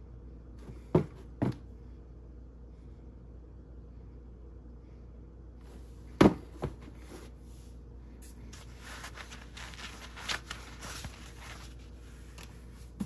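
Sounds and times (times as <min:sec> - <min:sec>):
shoes knocking on cardboard box: 0:00.6 - 0:01.6, 0:06.2 - 0:06.9
rustling: 0:08.2 - 0:13.0.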